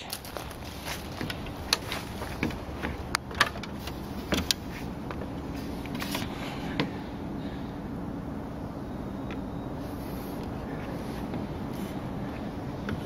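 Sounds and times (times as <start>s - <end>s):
footsteps and handling knocks: 0.0s - 5.3s
steady low hum: 0.0s - 13.0s.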